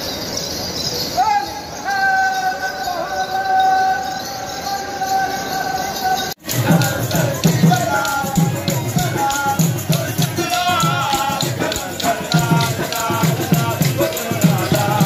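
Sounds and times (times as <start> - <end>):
rattling jingling rhythm: 0.0 - 15.0
driving drum beat: 6.4 - 15.0.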